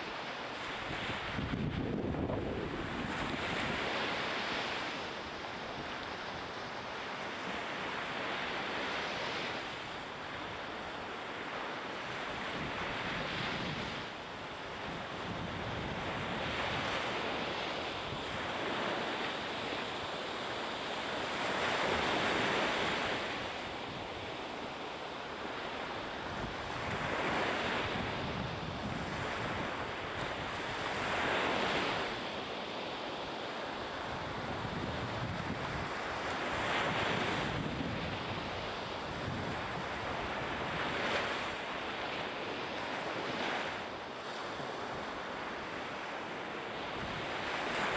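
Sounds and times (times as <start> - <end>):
wind buffeting microphone: 0.8 - 4.6, 26.3 - 31.7, 34.2 - 41.1.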